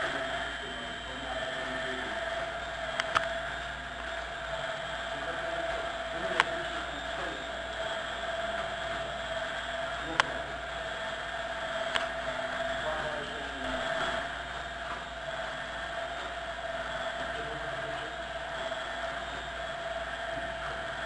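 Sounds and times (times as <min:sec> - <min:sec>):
drum mixer motor whine: 0:00.0 - 0:21.0
sharp clicks: 0:02.9 - 0:04.3, 0:06.2 - 0:06.8, 0:11.8 - 0:12.2.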